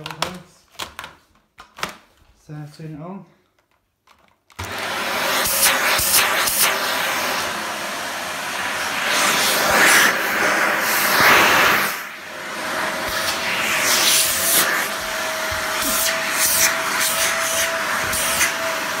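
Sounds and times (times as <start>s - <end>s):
upright vacuum cleaner running: 4.6s - 19.0s.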